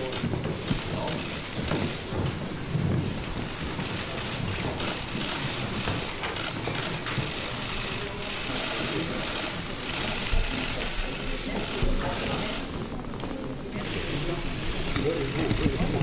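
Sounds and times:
low room murmur: 0.0 - 16.0
camera shutters clicking rapidly: 3.9 - 12.7.

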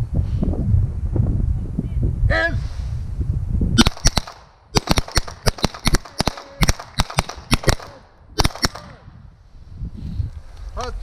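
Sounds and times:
pistol shots: 3.8 - 9.0.

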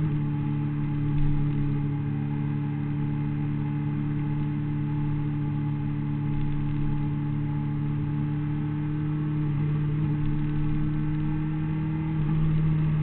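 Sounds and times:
motorcycle engine at high revs: 0.0 - 13.0.

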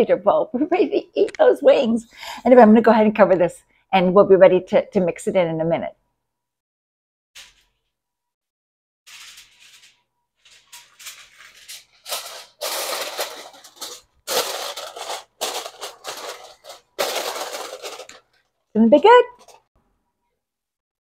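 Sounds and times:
aluminum foil crinkling: 9.1 - 19.7.

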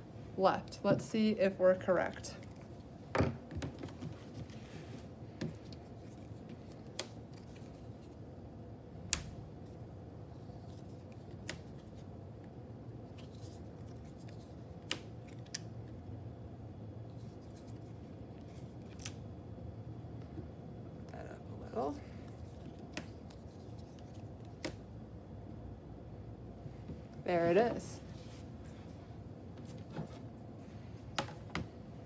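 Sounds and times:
faint room hum: 0.0 - 32.0.

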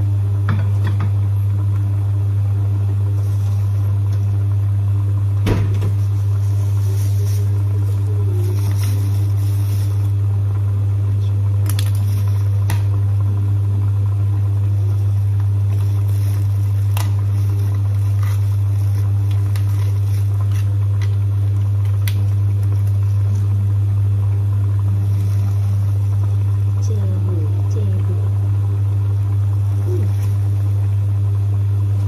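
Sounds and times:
loud low hum: 0.0 - 32.0
egg shell crinkling while peeled: 11.6 - 12.9, 15.7 - 23.5.

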